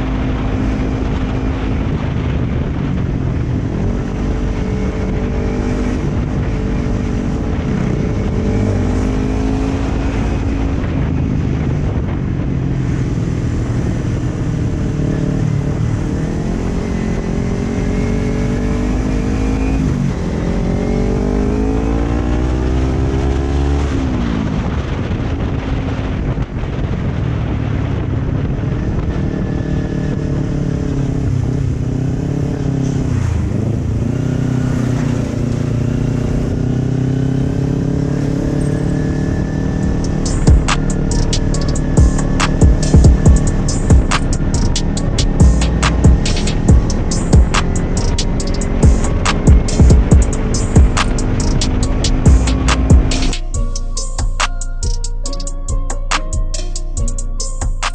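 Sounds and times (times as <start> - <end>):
motorcycle engine accelerating: 0.0 - 57.9.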